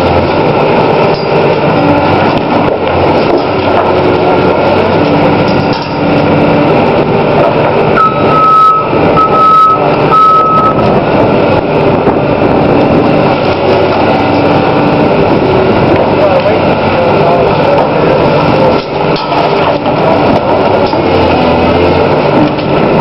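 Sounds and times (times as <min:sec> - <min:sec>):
diesel engine under load: 0:00.0 - 0:23.0
high steady whistle: 0:08.0 - 0:10.8.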